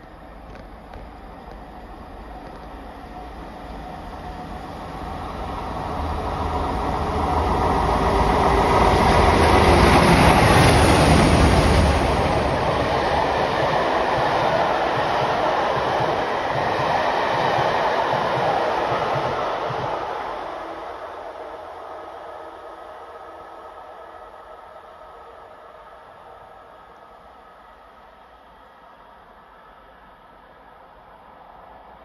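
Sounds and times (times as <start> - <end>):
train coaches rattling past: 3.8 - 23.4.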